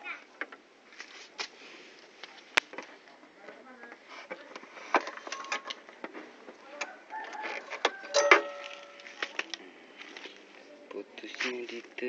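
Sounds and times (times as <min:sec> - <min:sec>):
plastic parts clicking and rattling: 0:03.9 - 0:06.2.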